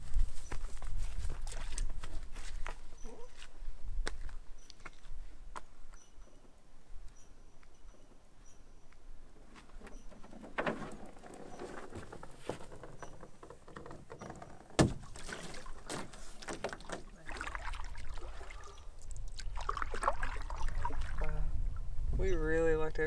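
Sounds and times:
canoe hull scraping on rocks: 9.6s - 17.2s.

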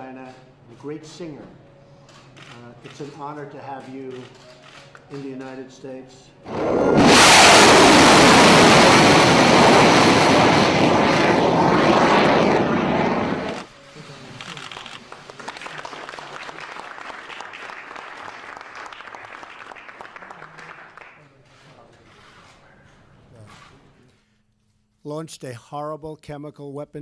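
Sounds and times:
rocket booster roar: 6.5s - 13.7s
people applauding: 14.4s - 21.3s.

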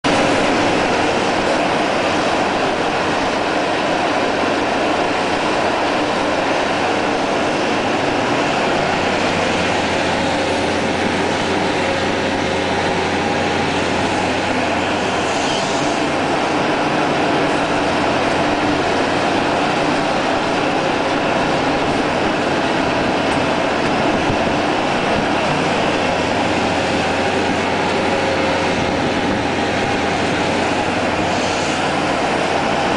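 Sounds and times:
excavator diesel engine and hydraulics: 0.0s - 32.9s.

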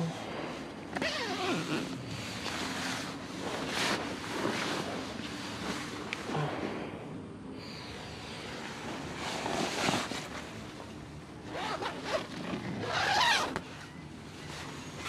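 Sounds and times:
tent zipper being pulled: 1.0s - 4.9s, 9.2s - 10.3s, 11.5s - 13.6s
nylon fabric rustling: 8.8s - 10.7s, 11.5s - 13.6s.

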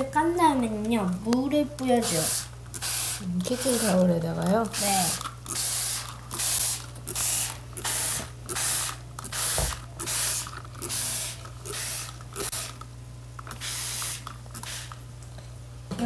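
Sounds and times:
spray bottle squirts: 2.0s - 4.0s, 4.8s - 12.8s, 13.5s - 15.0s.

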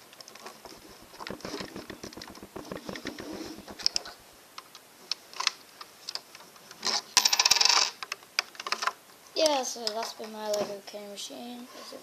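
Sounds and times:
plastic clicks and rattles: 0.7s - 4.7s.

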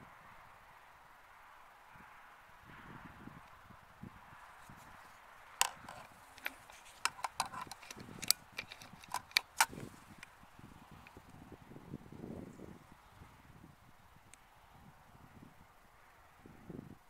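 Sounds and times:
sharp clicks and knocks: 5.6s - 10.3s.

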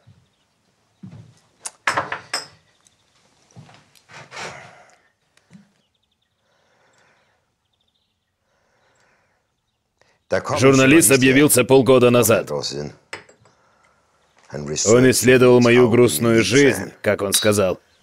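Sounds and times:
glassware knocking on wooden desk: 1.9s - 2.6s.

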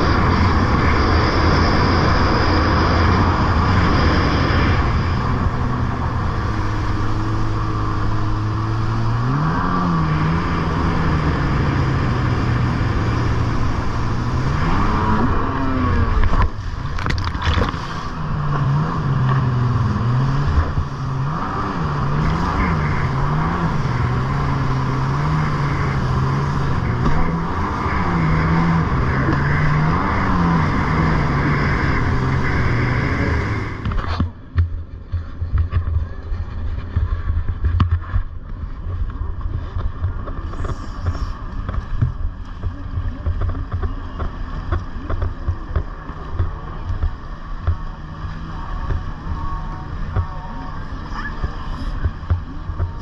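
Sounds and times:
water rushing and spraying: 0.0s - 34.1s
jet ski engine running: 0.0s - 53.0s
splash: 12.2s - 28.8s.

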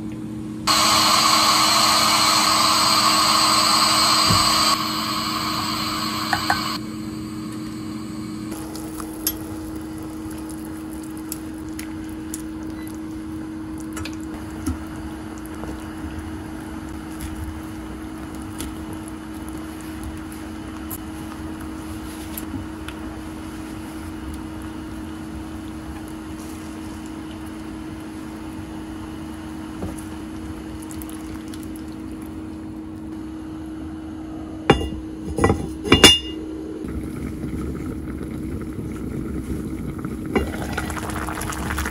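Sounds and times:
steady low hum: 0.0s - 41.9s
cast-iron lid clinking onto pot: 34.7s - 36.4s
kitchen knocks and clinks: 34.7s - 36.4s.

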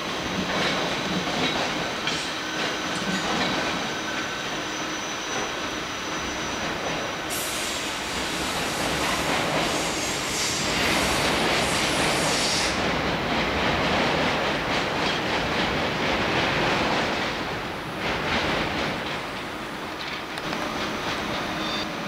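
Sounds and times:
train wheels rumbling on rails: 0.0s - 22.0s
high hiss: 7.1s - 12.9s.

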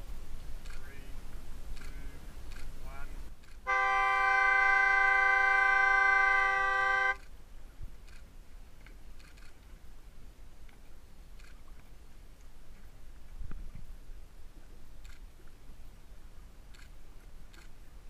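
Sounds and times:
faint low background noise: 0.0s - 18.0s
signal horn blast: 3.6s - 7.2s.

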